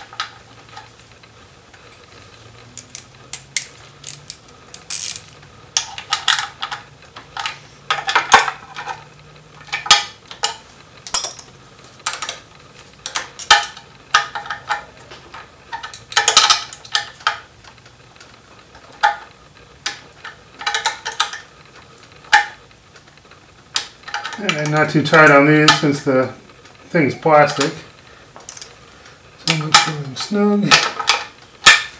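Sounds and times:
hand ratchet clicking: 2.7 - 6.4.

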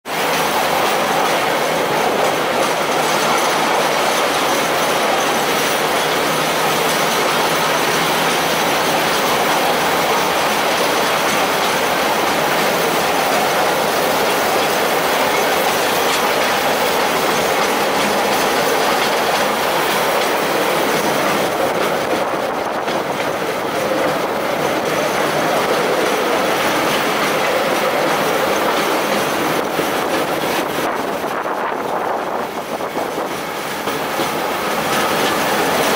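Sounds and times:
steel wheels rolling on rails: 0.1 - 35.9.

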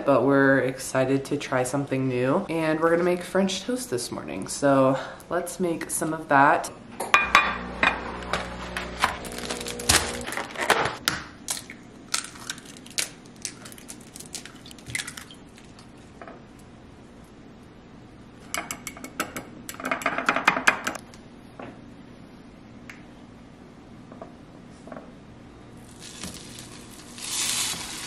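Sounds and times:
eggs cracking against glass: 11.4 - 15.9.

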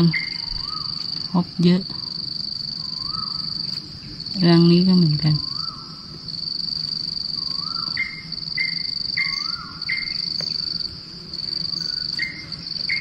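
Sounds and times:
bird whistling calls: 0.0 - 1.3, 2.7 - 3.6, 5.4 - 6.1, 7.3 - 10.8, 11.6 - 13.0
cricket trill: 0.0 - 13.0.

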